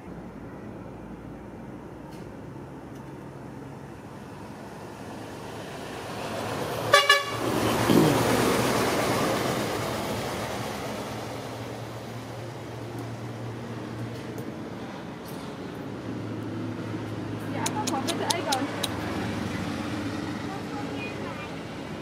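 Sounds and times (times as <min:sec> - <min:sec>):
vehicle passing: 0:04.4 - 0:22.0
vehicle horn toots: 0:06.9 - 0:07.4.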